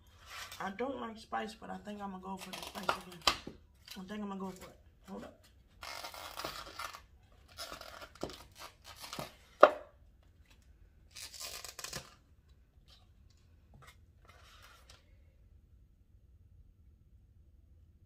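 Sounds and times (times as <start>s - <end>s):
food packaging tearing and rustling: 5.7s - 9.6s, 10.4s - 12.2s.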